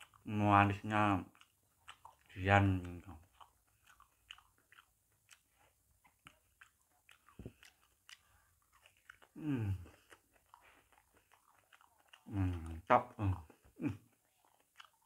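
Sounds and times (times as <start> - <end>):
wet chewing smacks: 0.0 - 15.0
man humming: 9.4 - 10.0, 12.3 - 14.0.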